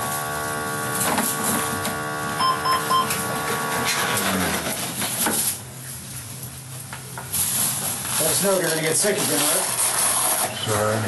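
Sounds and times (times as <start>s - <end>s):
monitor mechanical whir: 0.0s - 4.6s
short electronic beeps: 2.4s - 3.1s.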